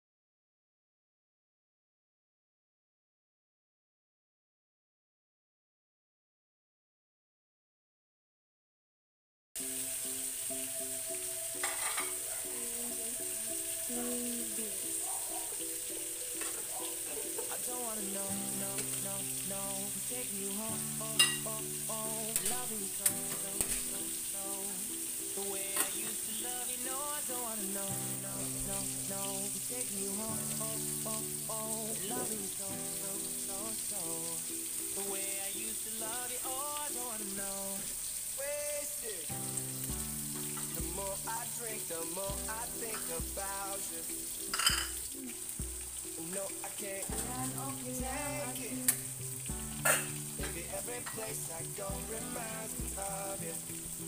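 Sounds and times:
background music: 9.6s - 54.0s
fish sizzling in a frying pan: 9.6s - 54.0s
cookware clinking: 11.6s - 12.6s, 16.2s - 17.9s, 21.1s - 21.6s, 25.7s - 26.2s, 44.5s - 45.1s, 49.8s - 51.3s.

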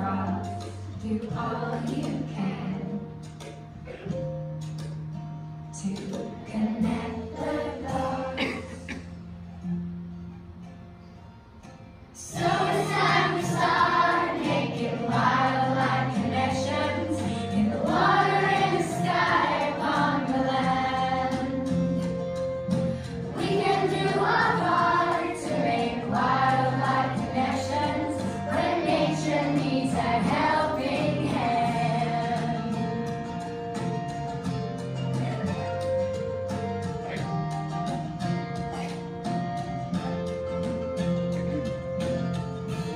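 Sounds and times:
instrumental accompaniment: 0.0s - 42.9s
children singing: 1.2s - 3.1s, 6.1s - 9.0s, 12.2s - 22.1s, 23.3s - 33.4s.

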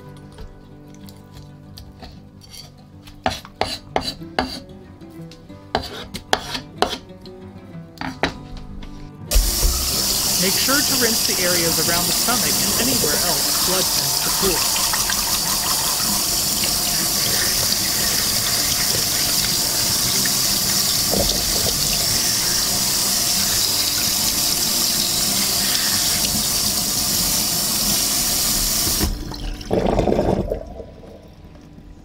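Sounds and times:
water splash: 9.3s - 25.1s
tap water running into sink: 9.3s - 31.7s.

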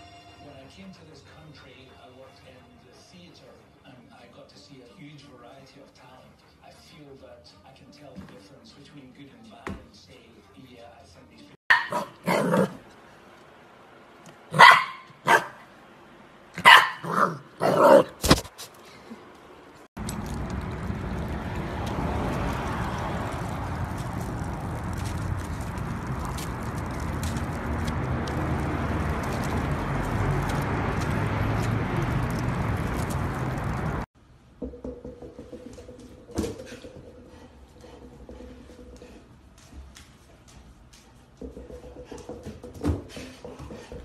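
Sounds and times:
puppy barking: 11.7s - 12.9s, 14.5s - 15.7s, 16.6s - 18.2s
outdoor background rumble: 19.3s - 34.1s
paws stepping on gravel: 20.0s - 34.0s.

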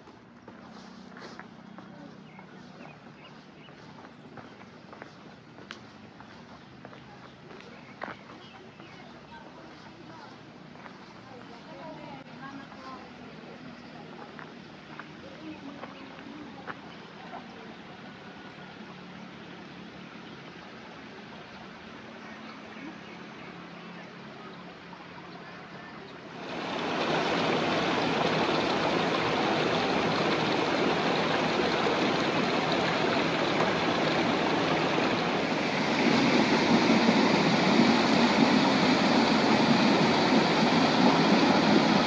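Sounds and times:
water rushing: 26.2s - 42.0s.

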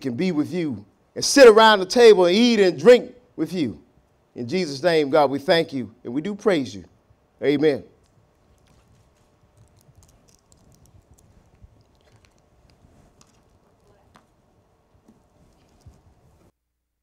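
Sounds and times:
small objects clicking and rustling: 8.0s - 14.4s.

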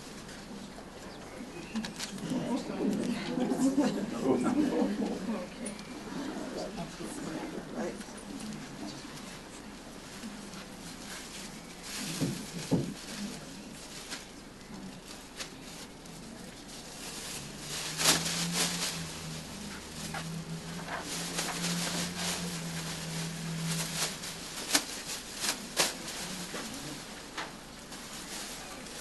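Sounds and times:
steady low hum: 0.0s - 29.0s
plastic apron crinkling: 11.0s - 29.0s.

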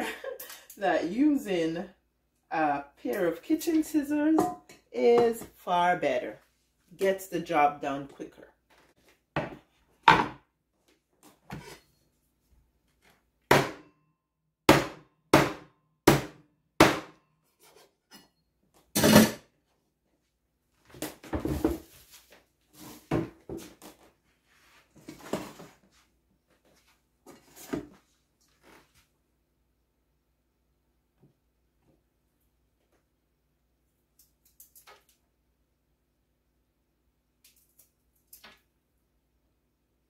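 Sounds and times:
cutting board set down: 9.4s - 10.4s
handling and scraping: 11.2s - 12.2s, 20.9s - 29.1s.

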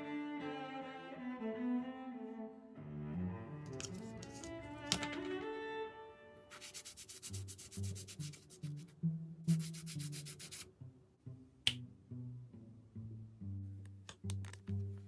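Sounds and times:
bowed bass background music: 2.4s - 5.9s, 6.5s - 15.0s
rapid scraping strokes: 6.5s - 8.9s, 9.5s - 10.6s.

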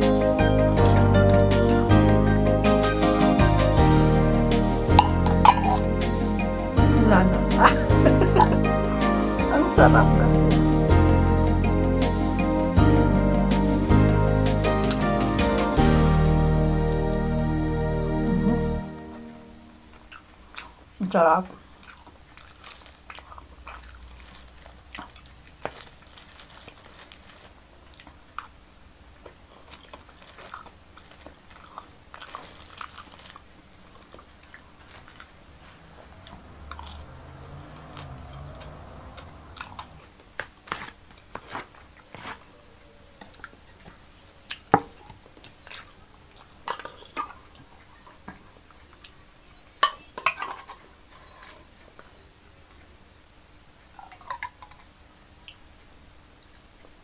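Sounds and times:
person chewing food: 5.0s - 6.0s, 19.9s - 49.2s, 56.3s - 57.0s.

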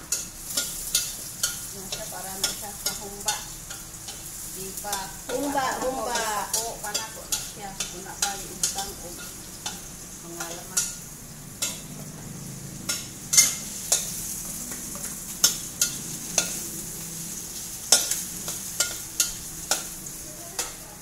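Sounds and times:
meat and onion sizzling in oil: 0.0s - 21.0s
metal spatula scraping a wok: 12.8s - 20.8s.

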